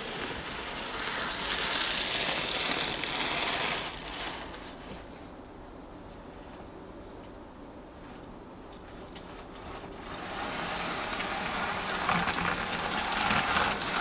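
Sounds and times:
model train running on track: 0.0 - 5.0, 9.2 - 14.0.

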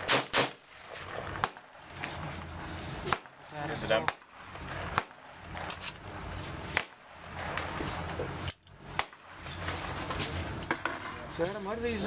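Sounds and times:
rifle shots: 0.0 - 1.8, 4.0 - 6.0, 6.7 - 7.8, 8.9 - 9.4.

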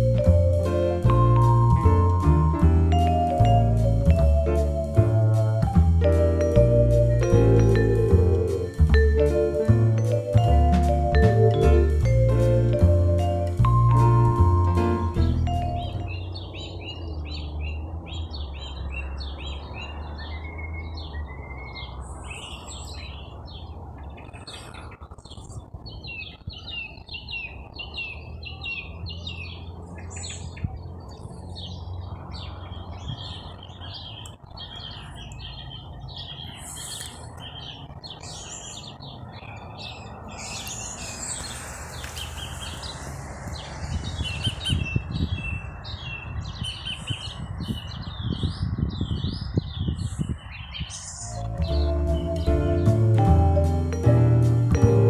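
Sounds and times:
small birds chirping: 15.2 - 54.9.

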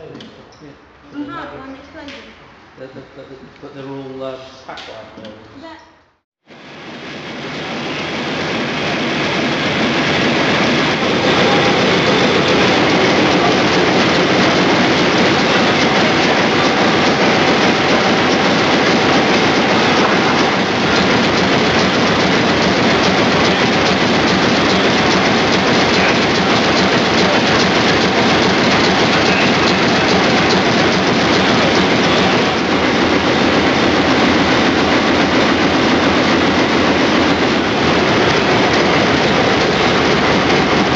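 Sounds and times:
diesel engine clattering: 9.2 - 40.9.

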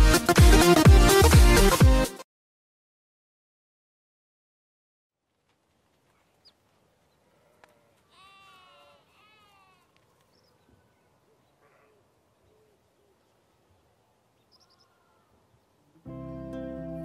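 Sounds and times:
animal bleating: 7.4 - 9.9.

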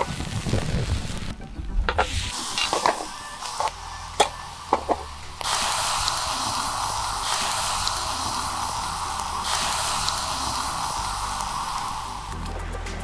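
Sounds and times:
steak sizzling on a grill: 2.0 - 12.4.

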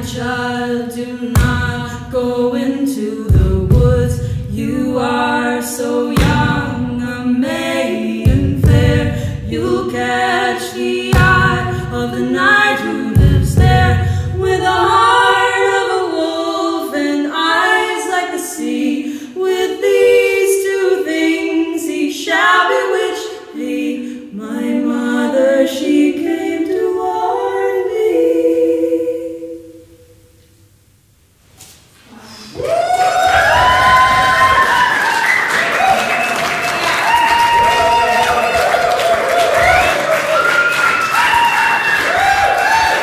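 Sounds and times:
women singing in harmony: 0.0 - 30.1
low thumps: 1.3 - 2.0, 3.3 - 4.9, 6.1 - 7.2, 8.2 - 10.1, 11.0 - 12.1, 13.2 - 14.7.

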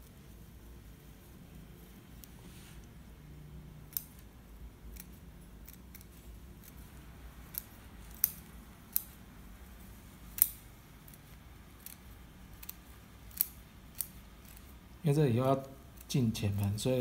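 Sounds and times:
scissors snipping roots: 3.9 - 4.2, 4.9 - 6.8, 7.4 - 9.2.

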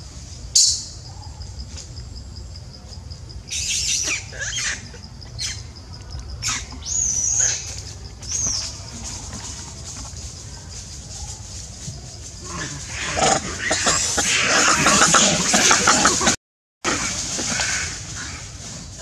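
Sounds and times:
pulsing insect chirr: 0.0 - 19.0
high-pitched squealing animal calls: 3.5 - 5.7, 12.5 - 16.4.

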